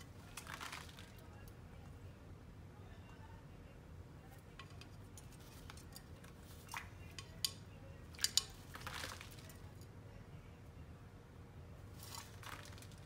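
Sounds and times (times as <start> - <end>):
parrot splashing in water: 12.0 - 13.0.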